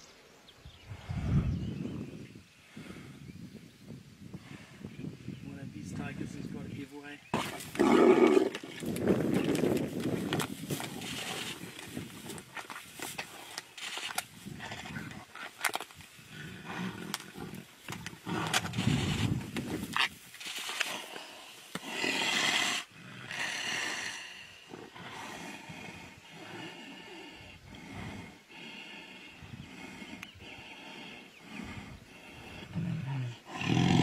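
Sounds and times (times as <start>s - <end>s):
tigers growling and snarling: 7.2s - 34.0s
scuffling and thrashing: 7.4s - 16.1s.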